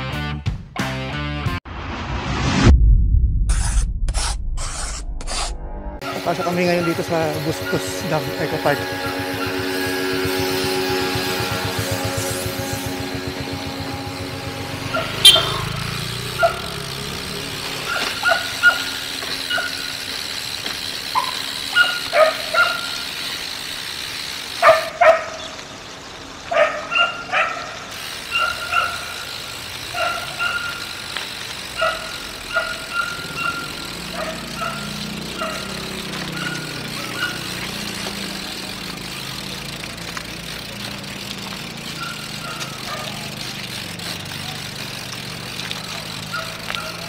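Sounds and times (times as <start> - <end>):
dog barking in sharp yips: 16.4 - 16.7, 17.9 - 19.9, 21.2 - 23.0, 24.6 - 25.4, 26.5 - 27.7, 28.3 - 29.1, 29.9 - 30.8, 31.8 - 33.6, 35.4 - 35.6, 36.4 - 37.4.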